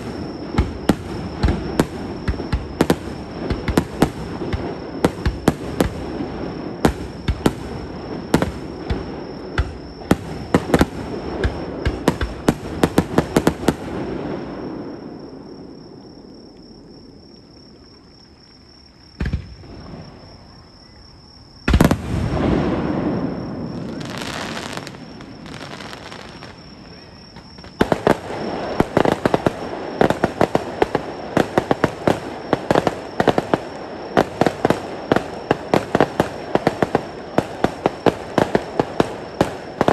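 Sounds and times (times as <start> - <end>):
fireworks crackling: 0.0 - 15.0, 21.7 - 39.9
fireworks bang with rumble: 21.6 - 26.2.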